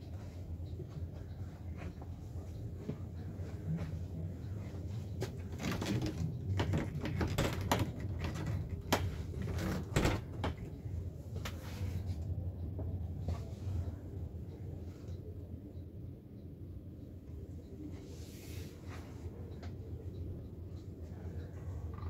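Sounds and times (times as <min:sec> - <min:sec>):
steady low hum: 0:00.0 - 0:22.0
sharp clicks and knocks: 0:05.2 - 0:10.9.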